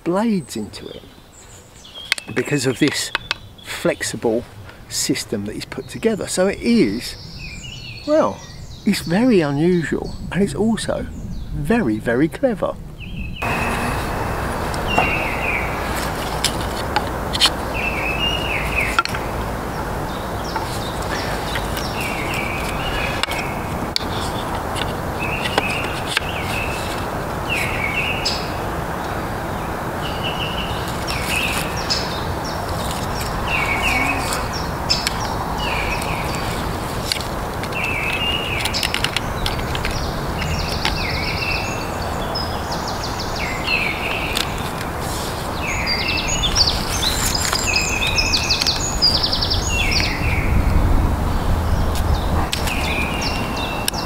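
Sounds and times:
songbird chirping: 0:00.0 - 0:54.0
steady outdoor rushing noise: 0:04.4 - 0:54.0
wooden frame parts clicking: 0:15.9 - 0:17.7, 0:18.8 - 0:19.3, 0:20.5 - 0:27.7, 0:32.6 - 0:41.0.

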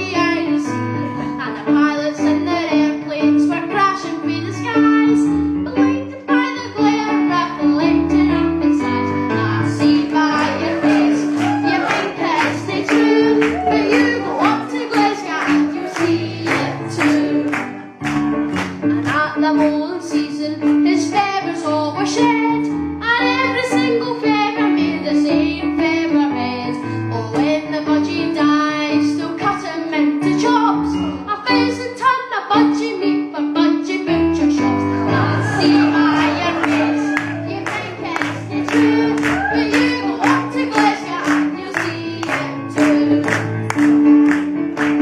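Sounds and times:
instrumental music with steady beat: 0:17.2 - 0:19.8.

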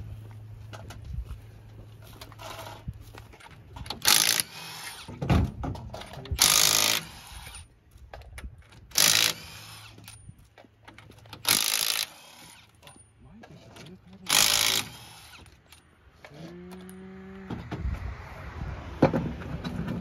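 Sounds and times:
wheel and tools clanking: 0:00.3 - 0:17.8, 0:19.0 - 0:20.0
impact wrench bursts: 0:03.9 - 0:05.1, 0:06.4 - 0:07.7, 0:08.9 - 0:10.2, 0:11.4 - 0:12.7, 0:14.3 - 0:15.7.

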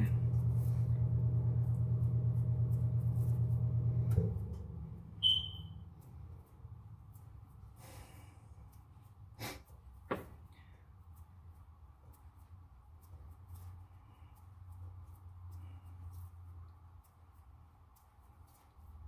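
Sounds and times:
low machine hum: 0:00.0 - 0:09.3
short high beep: 0:05.2 - 0:05.8.

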